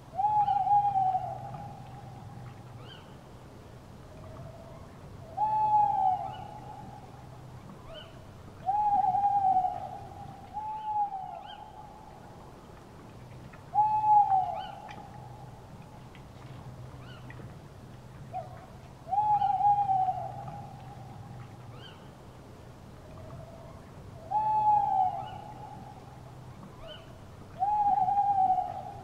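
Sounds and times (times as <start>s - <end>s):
owl hooting: 0.1s - 2.1s, 5.4s - 6.8s, 7.9s - 11.8s, 13.8s - 15.0s, 19.1s - 21.1s, 24.3s - 25.8s, 27.6s - 29.0s.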